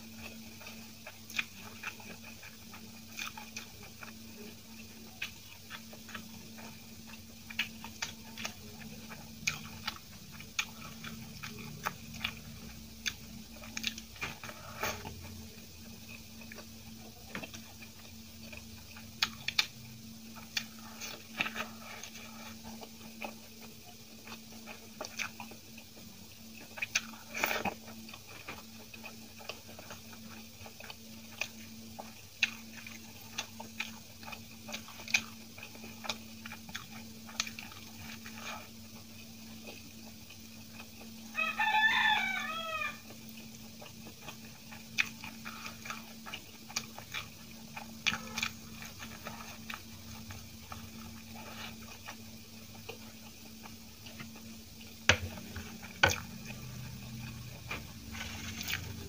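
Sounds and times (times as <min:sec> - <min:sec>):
wet chewing sounds: 0:00.0 - 0:59.0
rooster crowing: 0:41.3 - 0:43.2.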